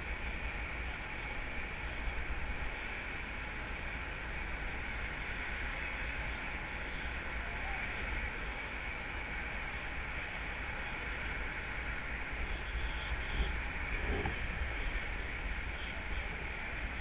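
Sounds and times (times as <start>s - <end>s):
wind buffeting microphone: 8.0s - 17.0s.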